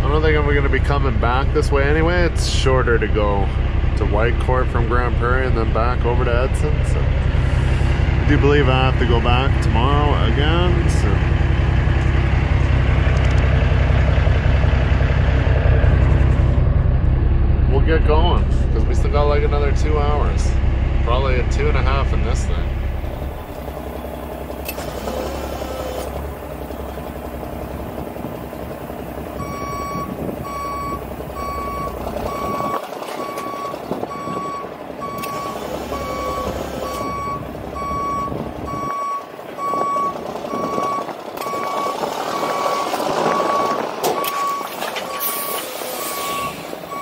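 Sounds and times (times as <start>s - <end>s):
truck engine running: 0.0s - 47.0s
vehicle backup alarm beeping: 29.4s - 47.0s.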